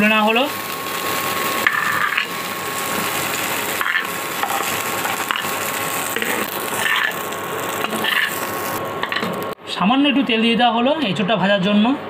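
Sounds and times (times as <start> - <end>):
oil sizzling and crackling: 0.0 - 9.6
metal spatula clicks and scrapes: 3.8 - 9.3.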